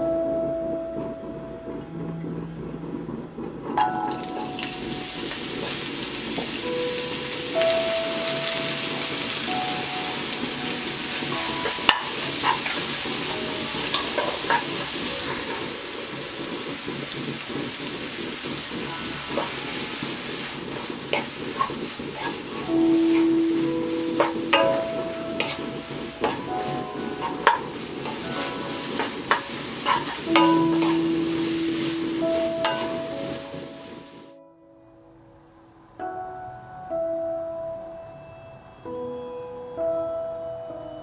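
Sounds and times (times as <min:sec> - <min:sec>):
roots sizzling in hot oil: 0:03.8 - 0:34.3.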